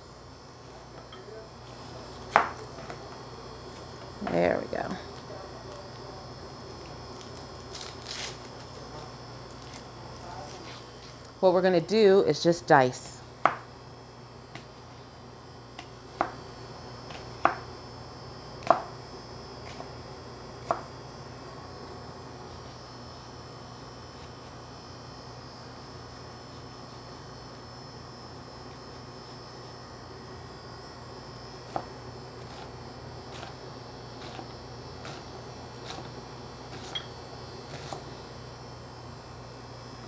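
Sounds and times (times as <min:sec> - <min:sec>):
steady hum: 0:00.0 - 0:40.0
knife chopping on cutting board: 0:02.3 - 0:02.6, 0:18.6 - 0:18.9, 0:20.6 - 0:20.9, 0:34.2 - 0:37.1
faint high whine: 0:25.2 - 0:40.0.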